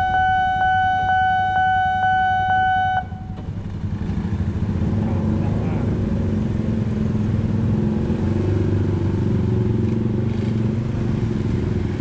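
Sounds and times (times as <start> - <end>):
motorcycles and scooters running: 2.7 - 12.0.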